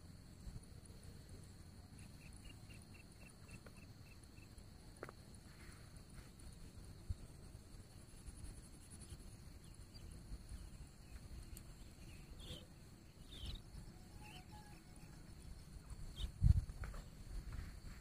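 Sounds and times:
faint bird calls: 11.1 - 17.2.

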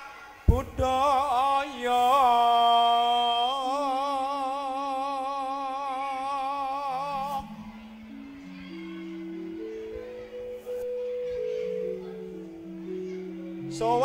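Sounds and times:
man singing with vibrato: 0.4 - 8.2, 12.1 - 14.0
low instrument notes: 6.2 - 14.0.

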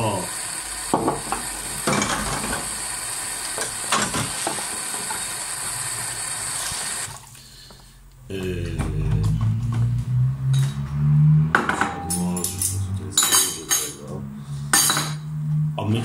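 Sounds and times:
running tap water: 0.0 - 7.3
dishware knocking and clattering: 1.0 - 2.6, 11.5 - 12.6, 13.2 - 14.0, 14.7 - 15.2.

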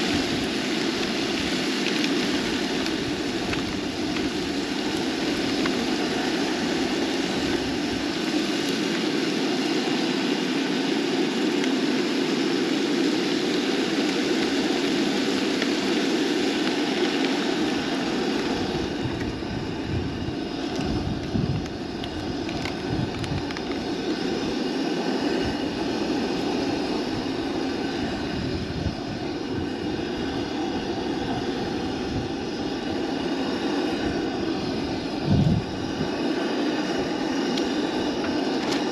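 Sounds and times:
camp stove burner roaring: 0.0 - 38.9
meat sizzling in frying pan: 0.0 - 38.9
wind buffeting microphone: 16.8 - 38.9.

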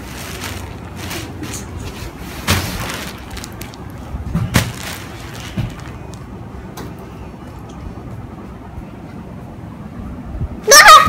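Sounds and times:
rustling and bumping on bed: 0.0 - 6.1.

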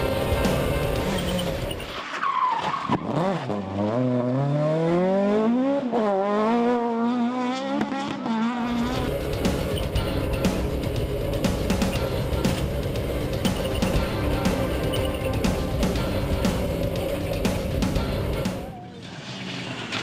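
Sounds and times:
car engine accelerating hard: 0.0 - 1.9, 3.0 - 20.0
background music: 0.0 - 2.0, 8.6 - 18.8.

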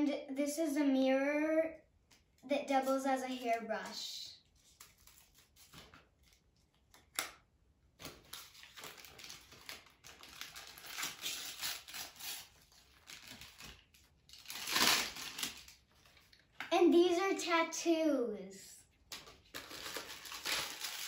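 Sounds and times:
plastic packaging crinkling: 8.0 - 16.6, 19.0 - 21.0.

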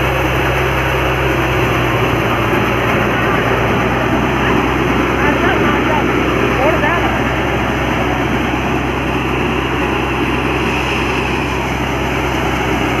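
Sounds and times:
thresher running: 0.0 - 13.0.

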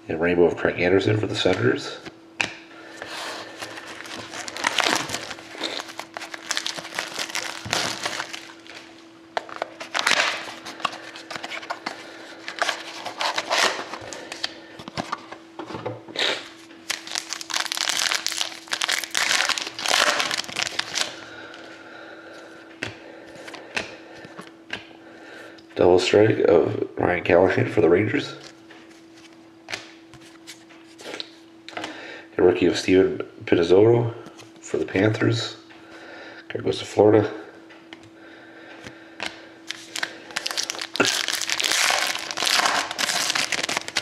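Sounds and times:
faint steady hum: 0.0 - 44.0
card wrapper crinkling: 3.1 - 15.2, 16.8 - 21.2, 39.7 - 44.0.

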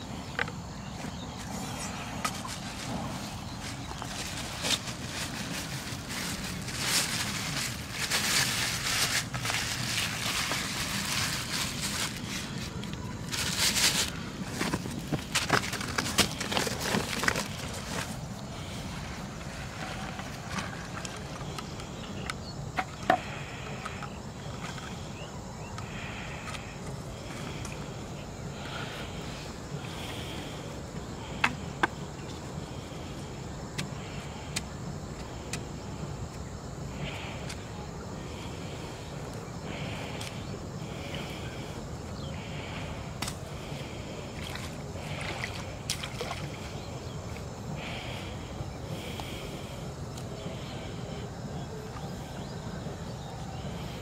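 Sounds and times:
plastic bag crinkling: 3.7 - 18.2.

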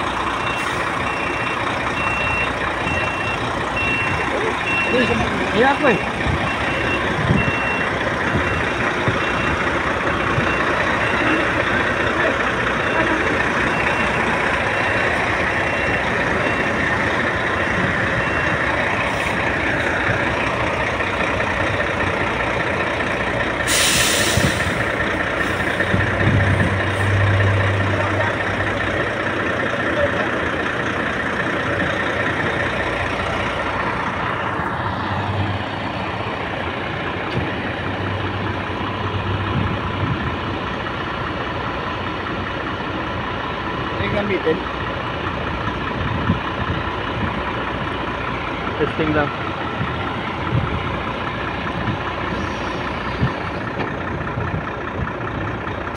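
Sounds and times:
truck engine running: 0.0 - 55.9
air brake hiss: 23.6 - 25.6.

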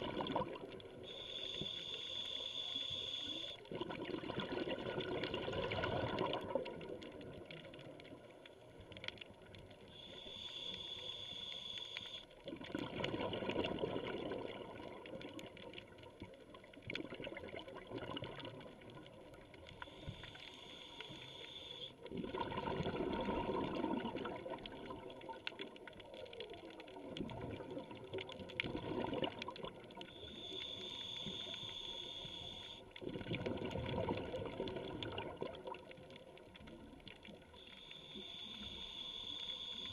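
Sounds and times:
gurgling exhaled bubbles: 0.0 - 1.1, 3.6 - 8.3, 12.4 - 19.9, 22.0 - 30.4, 33.0 - 37.6
diver breathing through regulator: 1.0 - 3.6, 9.9 - 12.3, 19.8 - 22.0, 30.1 - 32.8, 37.6 - 39.9.

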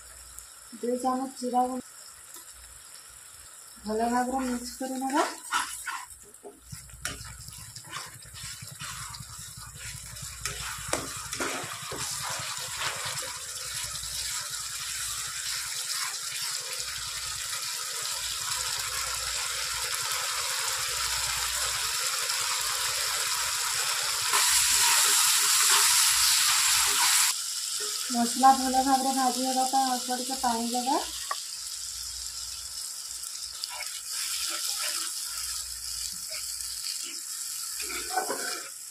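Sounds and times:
masala sizzling in oil: 0.0 - 38.9
spatula scraping and knocking: 5.2 - 13.0.

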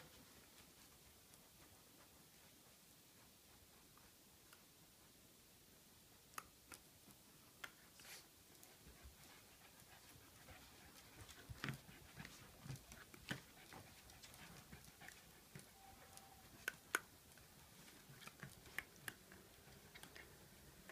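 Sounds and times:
dog panting: 0.1 - 6.3, 7.3 - 20.9
faint clicks and taps: 6.2 - 7.9, 8.5 - 20.9.

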